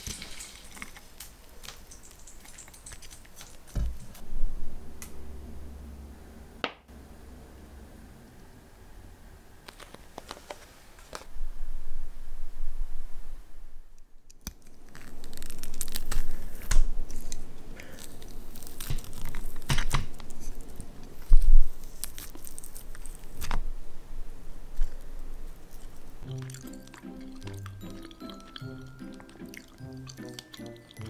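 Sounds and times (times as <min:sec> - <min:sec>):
squid flesh tearing and squelching: 0:14.4 - 0:20.7.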